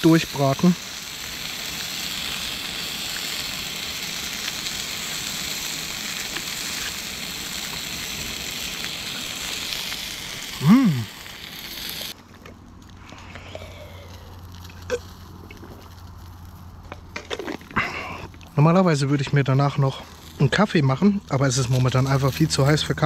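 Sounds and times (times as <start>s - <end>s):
sausages sizzling in a pan: 0.0s - 12.2s
person humming: 10.6s - 11.1s.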